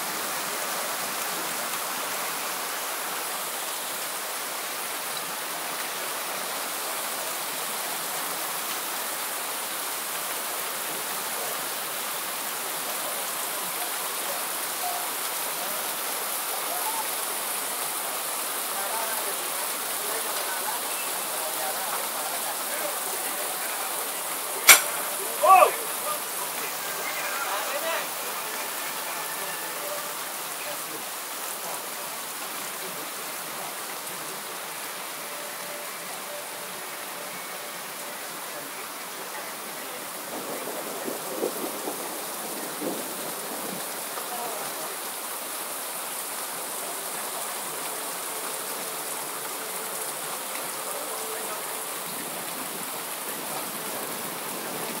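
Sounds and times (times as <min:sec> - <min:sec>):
rain falling: 0:00.0 - 0:55.0.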